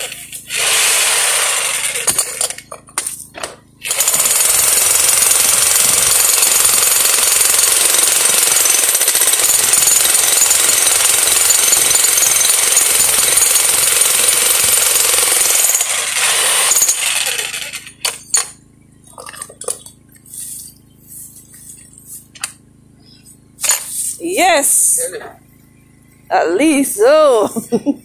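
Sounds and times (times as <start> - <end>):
jackhammer pounding rock: 0.0 - 2.8, 3.4 - 18.6.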